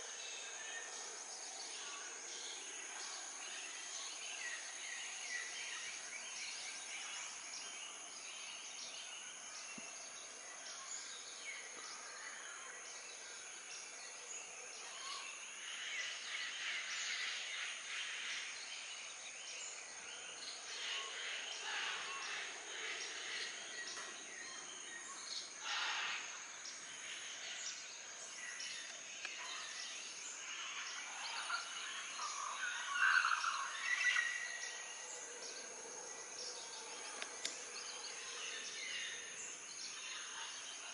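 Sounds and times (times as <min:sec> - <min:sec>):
birds calling and chirping: 0:14.4 - 0:40.9.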